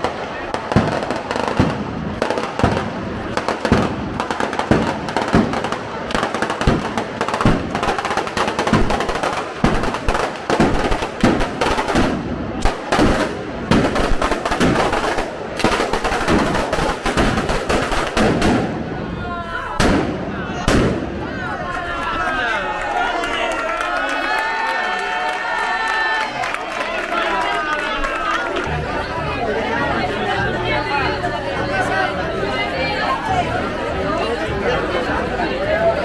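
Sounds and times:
firecrackers banging: 0.0 - 21.5.

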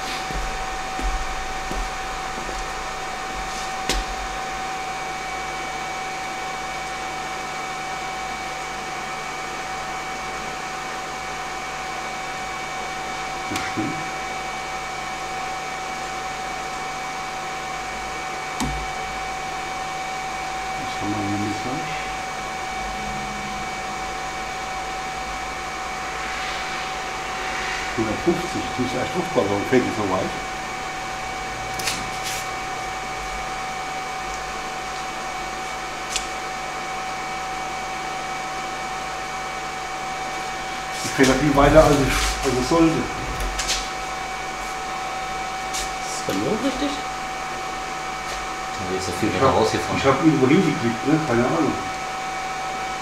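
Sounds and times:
electric motor whine: 18.6 - 35.4
rushing air: 22.0 - 32.8.

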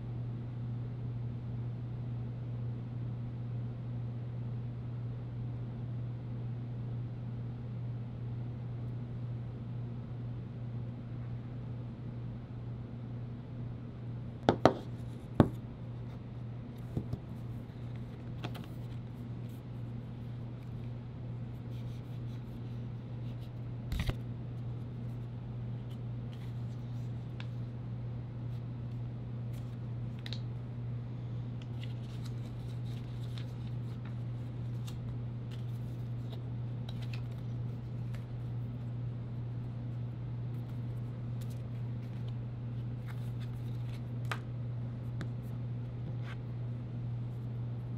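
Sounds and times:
steady low hum: 0.0 - 47.9
card and paper rustling: 16.8 - 19.7, 31.6 - 38.8, 40.6 - 44.4.

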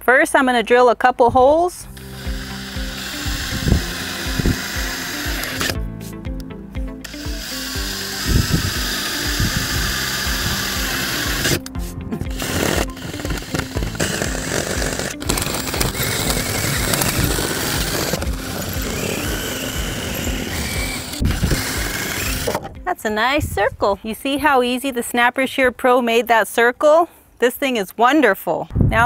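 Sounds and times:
background music with beat: 1.8 - 22.9
drill boring into board: 2.0 - 5.8, 7.0 - 11.7, 12.3 - 22.7.

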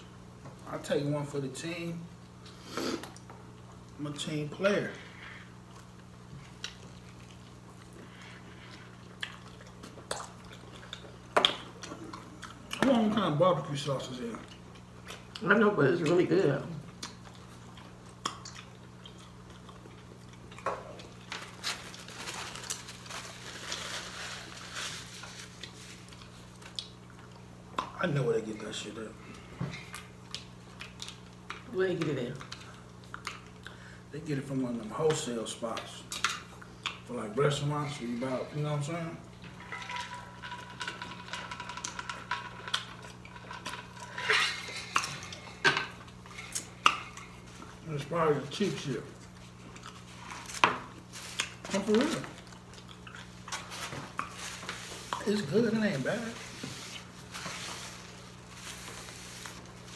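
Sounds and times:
chewing fried chicken: 2.2 - 28.0, 28.6 - 38.2, 39.2 - 59.9
paper napkin crinkling: 21.3 - 26.5, 53.4 - 59.9.

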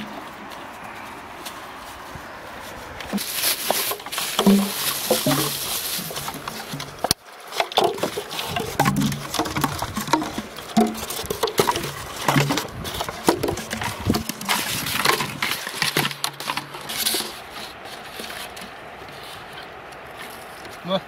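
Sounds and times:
plastic crinkles and rustles: 0.0 - 21.0.

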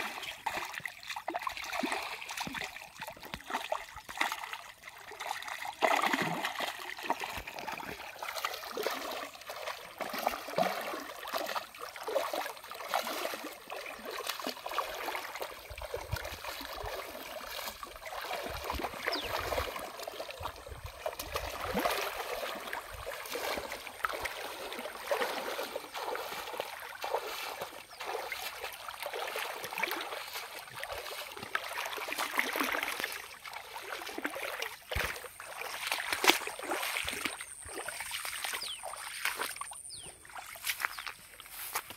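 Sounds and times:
person wading through water: 0.0 - 41.9.

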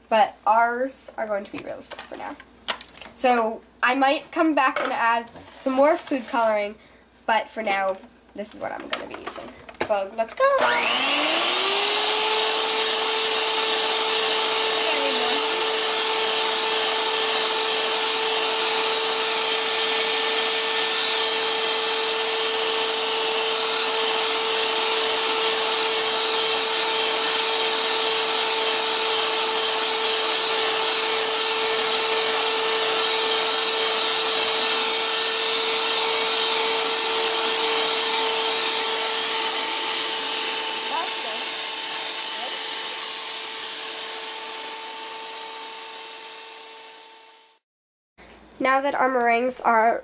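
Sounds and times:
electric hand mixer whirring: 10.4 - 47.6.

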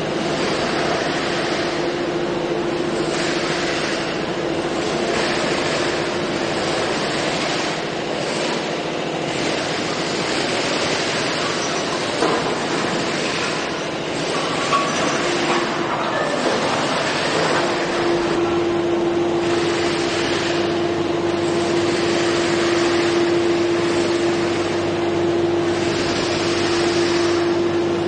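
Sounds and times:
factory machinery running: 0.0 - 28.0.

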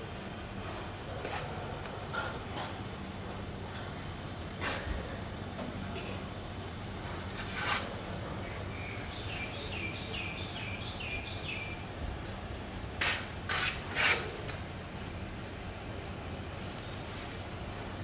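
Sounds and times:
trowel scraping wet mortar: 7.4 - 8.0, 13.0 - 14.6.

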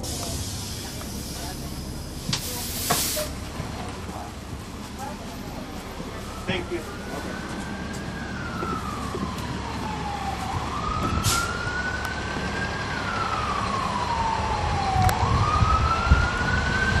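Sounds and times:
bus engine rumble: 0.0 - 17.0
emergency siren wailing: 0.8 - 17.0
short hiss: 2.4 - 3.3.

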